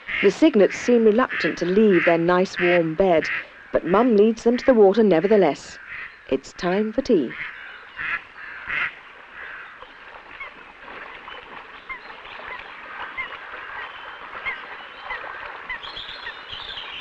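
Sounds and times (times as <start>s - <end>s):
rough bird calls: 7.3s - 17.0s
cygnets peeping: 11.3s - 17.0s.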